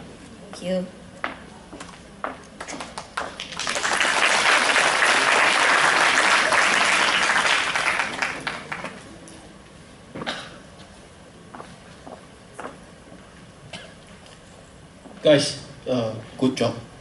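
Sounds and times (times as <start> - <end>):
audience applauding: 2.6 - 9.0.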